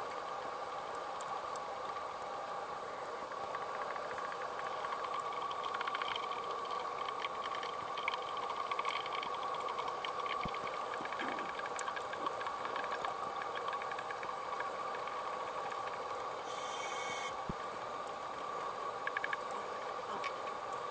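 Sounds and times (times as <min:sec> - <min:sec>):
faint crackling clicks: 0:00.0 - 0:02.4, 0:03.0 - 0:16.3, 0:17.5 - 0:20.9
constant hum: 0:00.0 - 0:20.9
underwater hiss: 0:16.5 - 0:17.3.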